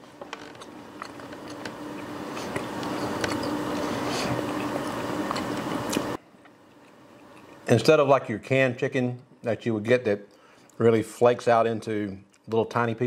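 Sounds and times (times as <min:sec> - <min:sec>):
steady background hum: 0:00.0 - 0:13.0
man chewing food: 0:00.4 - 0:07.7.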